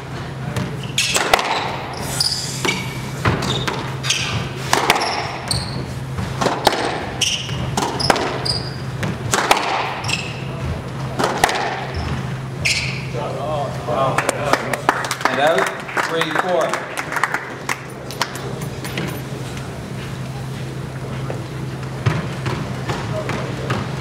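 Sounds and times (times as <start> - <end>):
squash ball hitting rackets and walls: 0.0 - 13.2, 21.8 - 24.0
steady low hum: 0.0 - 24.0
sneakers squeaking on court: 0.2 - 13.2, 17.9 - 24.0.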